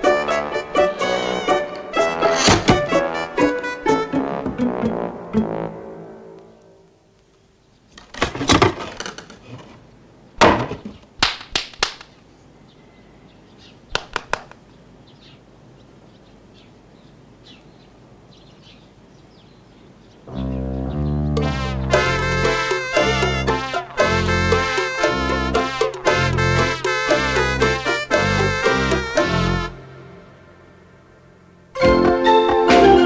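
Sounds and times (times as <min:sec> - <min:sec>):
background music: 0:00.0 - 0:06.9, 0:20.3 - 0:33.0.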